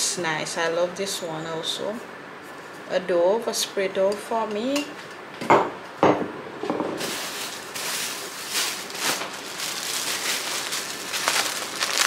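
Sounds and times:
packaging rustling and crinkling: 7.0 - 12.0.

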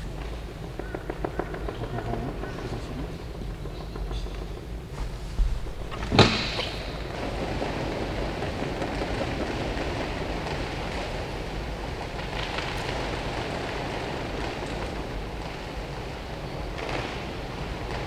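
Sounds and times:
sharp knock: 5.4 - 7.0.

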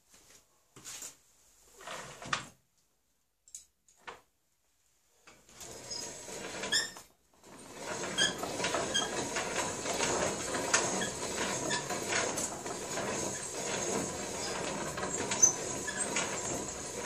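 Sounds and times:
reamer scraping in barrel: 5.6 - 17.0
high squeaks: 7.9 - 9.6, 10.8 - 17.0.

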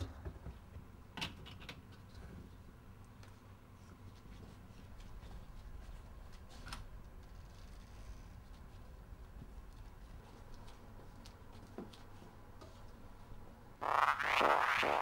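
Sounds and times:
low hum: 13.8 - 15.0.

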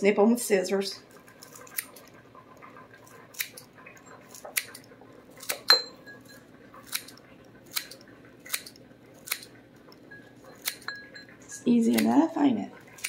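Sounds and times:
scissors snipping chives: 1.4 - 2.0, 5.4 - 5.7, 6.8 - 9.5, 10.6 - 10.9, 11.7 - 12.4.

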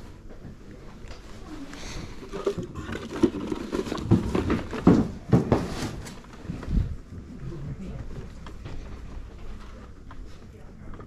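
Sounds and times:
irregular thumps and knocks: 2.4 - 5.8.

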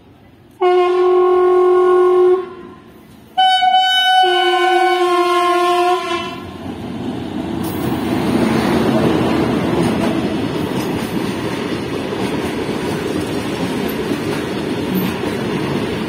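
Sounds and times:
freight train rumbling: 0.0 - 16.0
locomotive horn blasts: 0.6 - 6.5.

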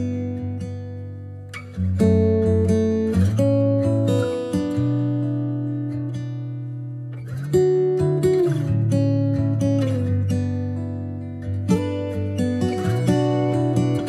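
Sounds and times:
strummed acoustic guitar chords: 0.0 - 14.0.

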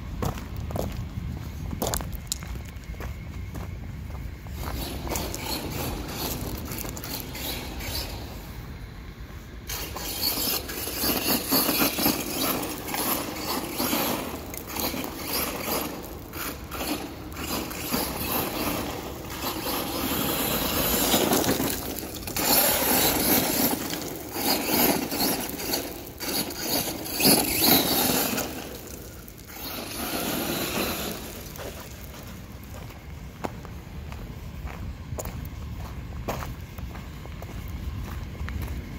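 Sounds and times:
tyres scraping gravel: 0.1 - 38.9
rc truck motor: 4.4 - 33.4.

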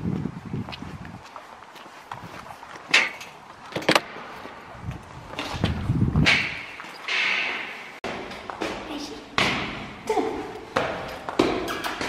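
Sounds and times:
footsteps on stone stairs: 0.0 - 12.0.

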